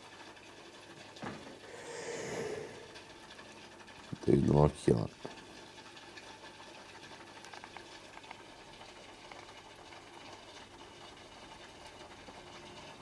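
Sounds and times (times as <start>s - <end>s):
aquarium air bubbler fizzing: 1.5s - 3.6s.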